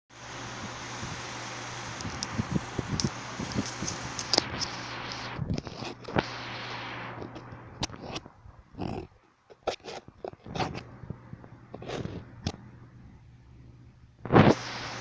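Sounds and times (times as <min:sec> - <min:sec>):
low hum: 0:00.1 - 0:15.0
steady hiss: 0:00.1 - 0:15.0
camera handling noise: 0:02.0 - 0:06.3.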